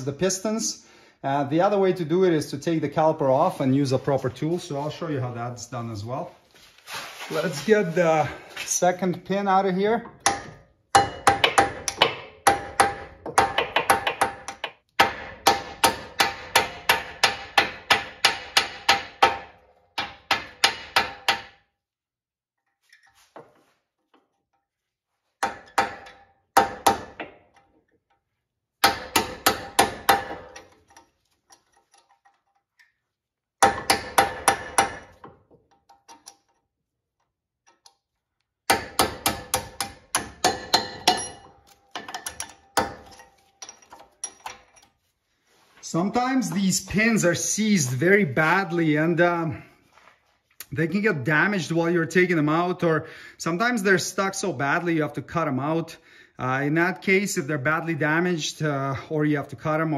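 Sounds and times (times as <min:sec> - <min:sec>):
hammer tapping metal punch: 0:10.1 - 0:21.6, 0:38.7 - 0:44.8.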